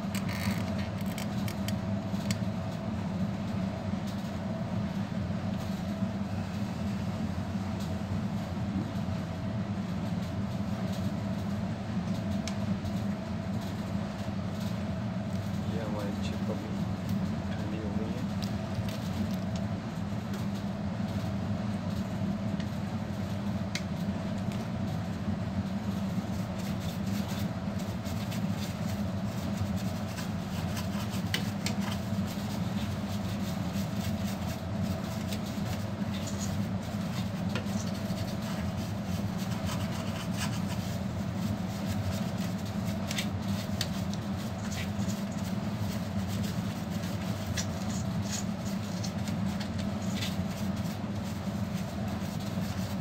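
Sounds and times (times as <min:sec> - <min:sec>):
low mechanical hum: 0:00.0 - 0:53.0
faint clicks and handling noises: 0:00.1 - 0:02.8.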